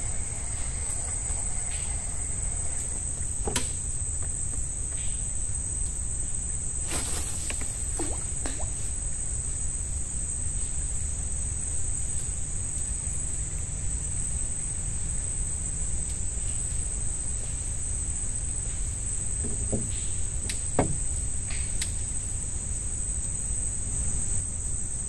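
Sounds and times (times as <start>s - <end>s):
low steady rumble: 0.0s - 6.8s
insects trilling: 0.0s - 25.0s.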